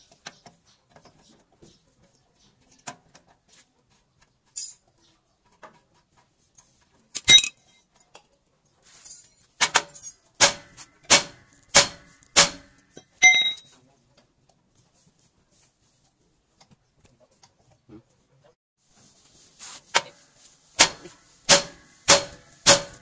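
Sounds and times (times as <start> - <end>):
metal clinking on metal: 4.5 - 4.8, 7.1 - 8.2.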